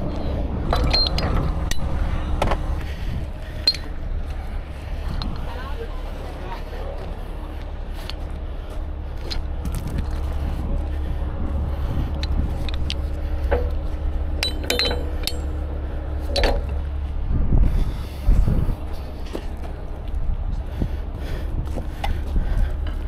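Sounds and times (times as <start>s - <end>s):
low rumble: 0.0s - 23.0s
steel hardware clinking: 0.7s - 2.0s, 3.5s - 4.0s, 12.2s - 16.8s.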